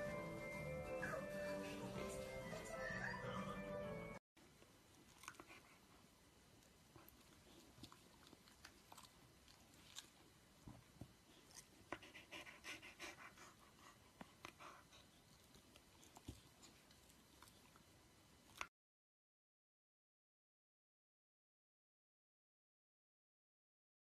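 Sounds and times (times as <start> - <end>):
dog panting: 0.1 - 2.8, 11.2 - 17.7.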